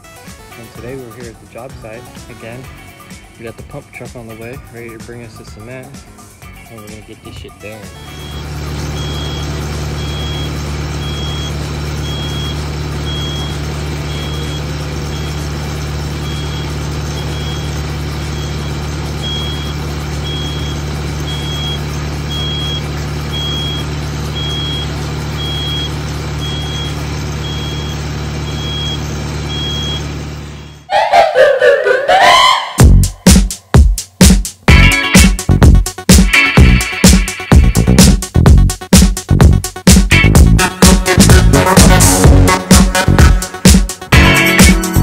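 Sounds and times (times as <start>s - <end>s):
truck engines rumbling: 0.4s - 33.0s
backup alarm beeping: 7.8s - 33.1s.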